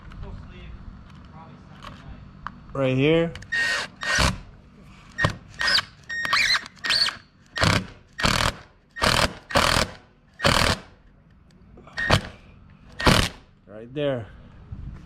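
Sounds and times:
cordless drill driving a screw: 3.5 - 4.4, 5.6 - 10.8.

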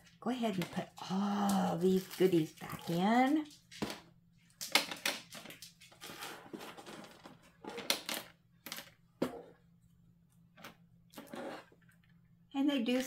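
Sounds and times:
small plastic tools clattering: 4.6 - 9.0.

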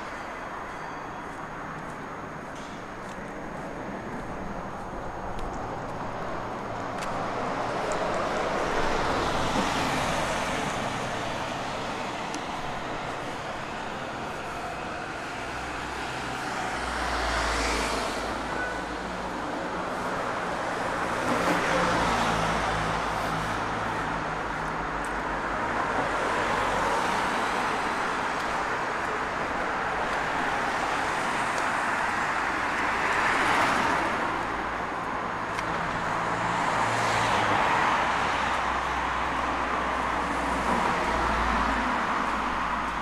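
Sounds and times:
cars passing: 0.0 - 43.0.

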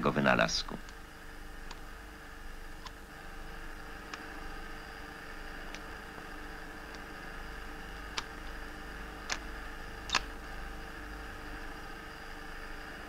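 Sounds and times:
film soundtrack hiss and hum: 0.0 - 13.0
sharp clicks: 10.0 - 10.3.

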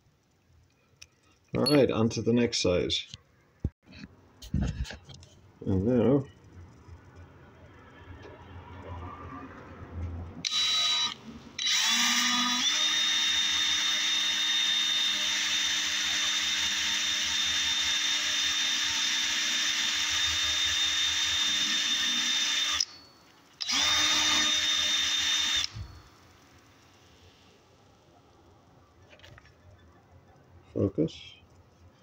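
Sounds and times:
electric drill whining: 10.4 - 27.0.

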